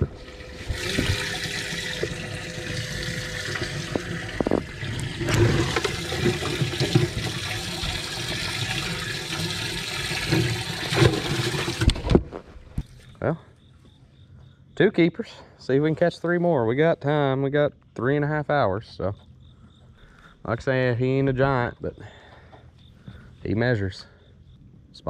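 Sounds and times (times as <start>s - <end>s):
water gushing and splashing: 0.0s - 12.1s.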